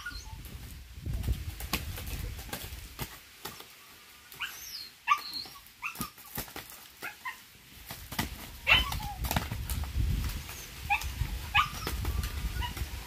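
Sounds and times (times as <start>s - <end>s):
wing flaps and scuffs: 0.2s - 4.6s, 5.3s - 13.0s
rooster yelping calls: 8.6s - 9.2s.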